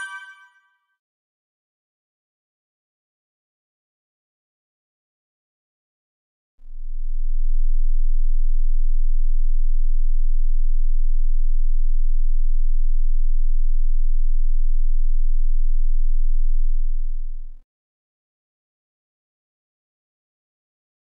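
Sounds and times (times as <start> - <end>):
low sine-wave test tone: 6.6 - 17.6.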